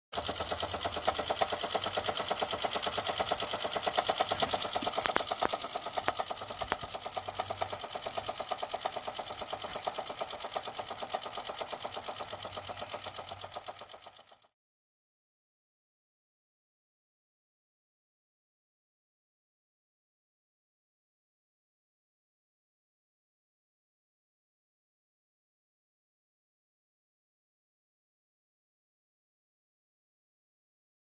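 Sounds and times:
toy steam engine chuffing: 0.1 - 14.5
sharp clicks: 1.0 - 13.8.

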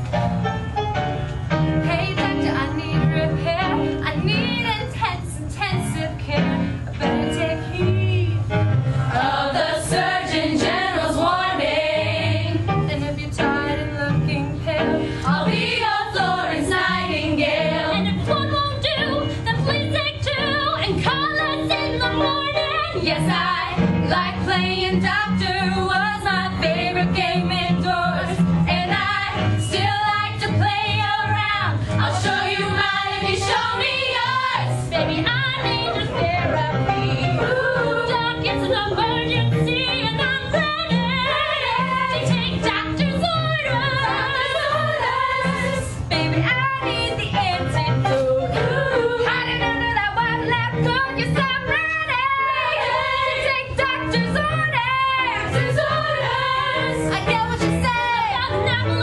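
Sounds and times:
women's ensemble singing: 9.1 - 59.0.

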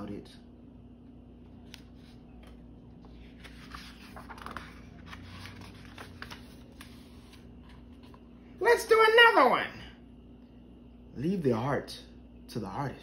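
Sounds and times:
paper pages rustling: 1.4 - 8.3.

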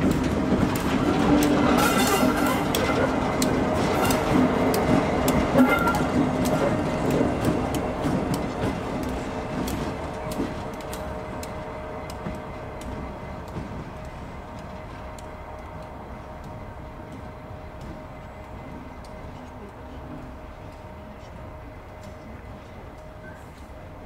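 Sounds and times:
wheels clicking over track: 0.0 - 17.2
train rumble: 0.0 - 24.0.

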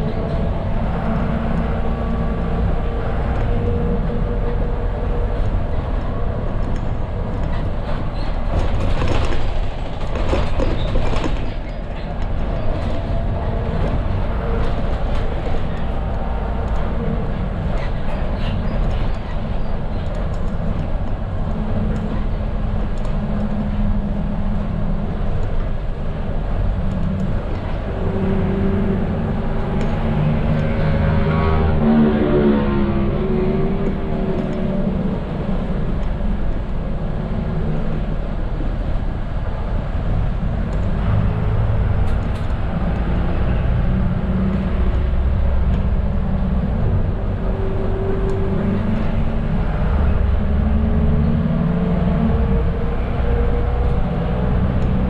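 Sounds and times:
bus diesel engine rumble: 0.0 - 55.0
road noise: 0.0 - 55.0.

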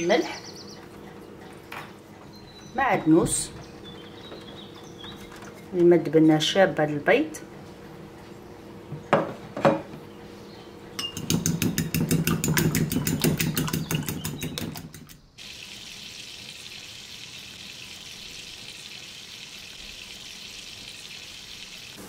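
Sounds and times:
fork beating eggs in bowl: 11.0 - 15.2
food sizzling in pan: 15.4 - 22.0.

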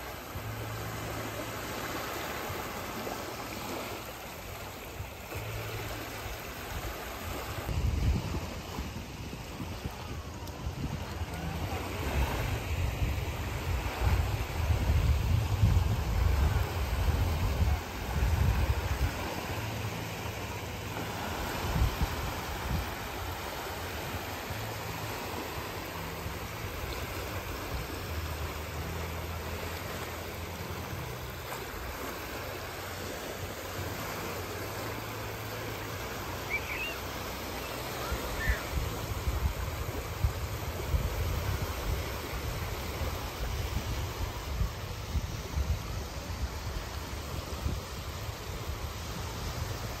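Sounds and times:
sea waves breaking on shore: 0.0 - 50.0
wind buffeting microphone: 6.8 - 19.7, 38.3 - 50.0.

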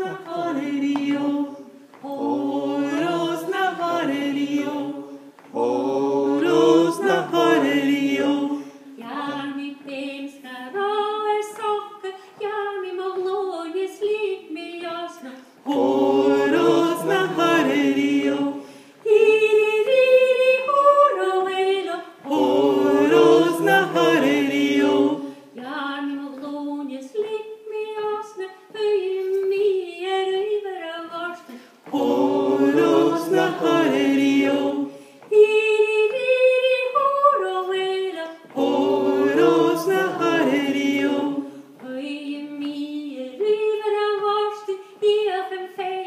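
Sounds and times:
group of voices singing chorus: 0.0 - 9.6, 15.6 - 21.3, 22.2 - 25.6, 31.8 - 35.9, 38.3 - 41.8.

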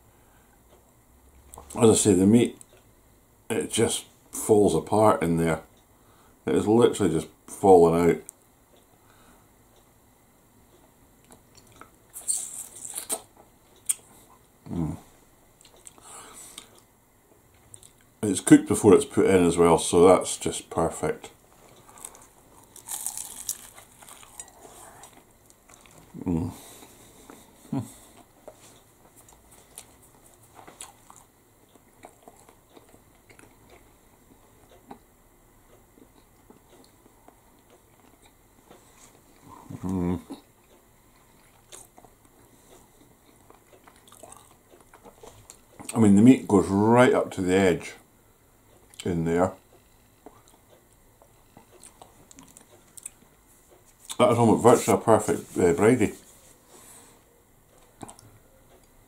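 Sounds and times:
wet chewing and lip-smacking: 11.2 - 14.0, 21.6 - 26.1, 28.1 - 33.9, 40.3 - 46.0, 50.2 - 53.3, 57.7 - 58.9
person humming: 26.1 - 26.6, 39.6 - 40.4.

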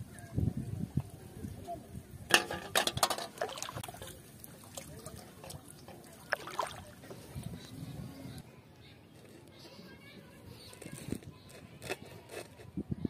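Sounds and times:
fish flapping in metal bowl: 2.4 - 6.7
fish splashing in water: 3.3 - 7.1.

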